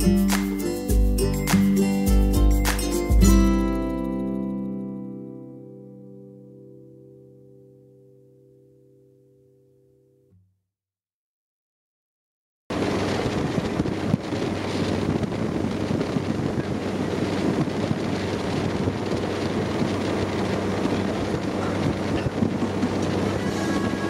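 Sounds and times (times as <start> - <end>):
boat engine drone: 12.7 - 24.0
water rushing past hull: 12.7 - 24.0
wind buffeting microphone: 12.7 - 24.0.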